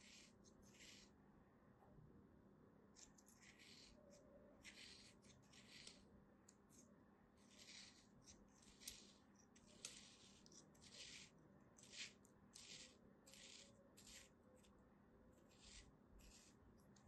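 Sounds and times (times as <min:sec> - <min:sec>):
knife scraping through sand: 0:07.4 - 0:14.7.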